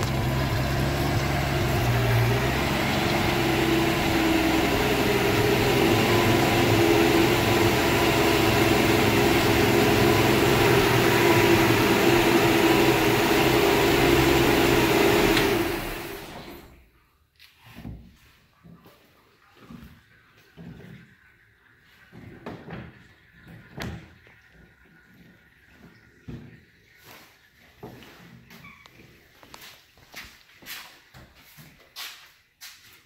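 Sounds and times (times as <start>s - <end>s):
engine idling: 0.0s - 16.7s.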